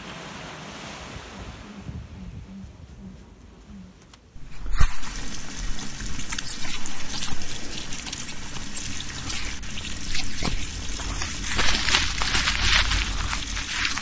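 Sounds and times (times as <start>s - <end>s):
small clicks and splashes: 4.4s - 14.0s
water trickling: 4.4s - 14.0s.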